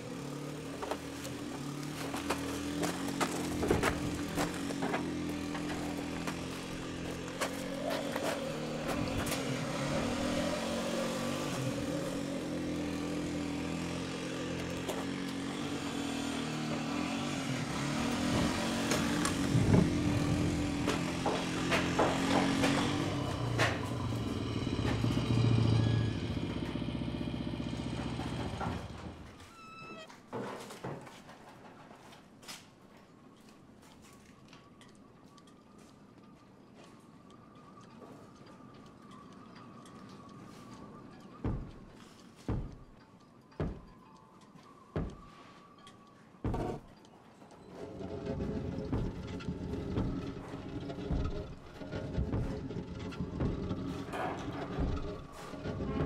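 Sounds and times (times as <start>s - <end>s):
vehicle engine running: 0.0s - 29.5s, 40.2s - 42.9s, 46.4s - 46.9s, 47.6s - 56.0s
knocks and clanks: 0.7s - 17.0s, 17.6s - 29.5s, 41.1s - 44.2s, 45.0s - 45.3s, 46.4s - 56.0s.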